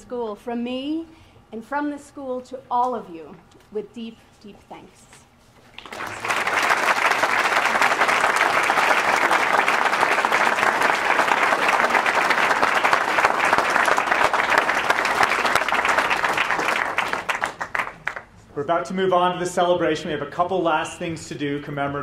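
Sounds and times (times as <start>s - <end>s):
audience applauding: 5.8s - 18.3s.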